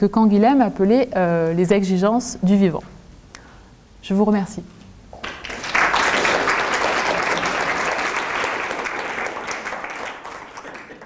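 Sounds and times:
audience applauding: 5.2s - 11.0s.

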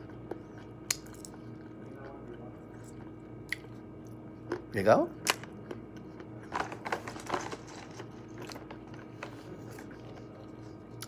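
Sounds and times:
chewing: 0.0s - 4.7s, 7.9s - 11.0s
faint steady hum: 0.0s - 11.0s.

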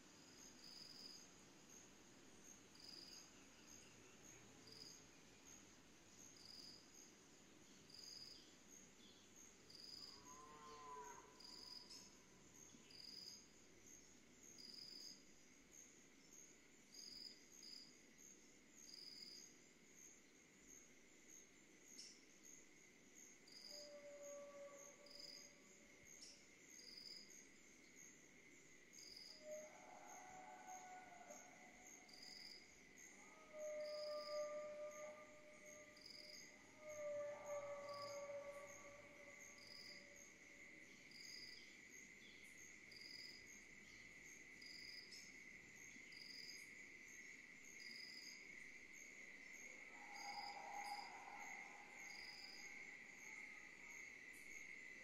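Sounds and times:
crickets chirping: 0.0s - 55.0s
high insect trill: 23.2s - 55.0s.

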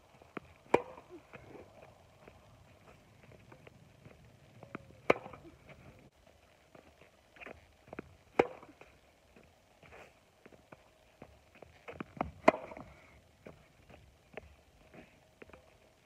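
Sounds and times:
tennis racket hitting ball: 0.7s - 1.1s, 5.0s - 5.5s, 8.4s - 8.7s, 12.2s - 12.8s.

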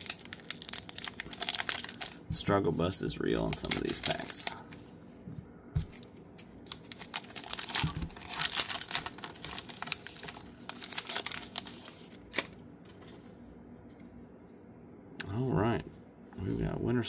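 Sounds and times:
wrapper tearing and crinkling: 0.0s - 2.2s, 3.4s - 4.7s, 5.9s - 12.6s.

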